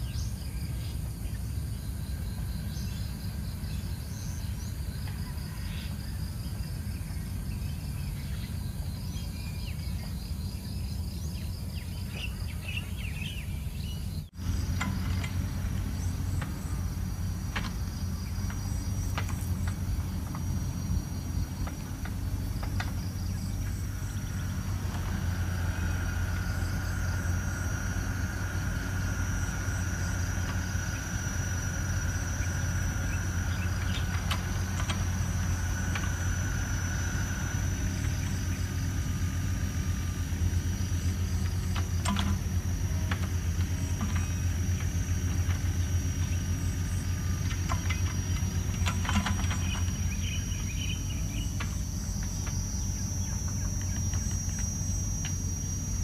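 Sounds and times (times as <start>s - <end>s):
faint chirps and clicks: 43.1s - 55.4s.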